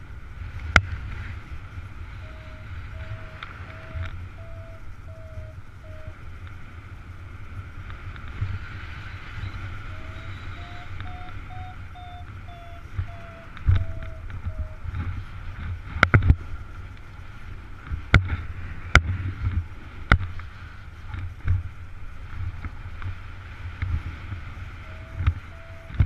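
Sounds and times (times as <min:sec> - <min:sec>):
wind rushing over microphone: 0:00.0 - 0:26.0
low buffeting rumbles: 0:01.4 - 0:07.8, 0:09.2 - 0:15.8
electronic beeping tone: 0:02.2 - 0:06.2, 0:09.4 - 0:14.8, 0:24.8 - 0:26.0.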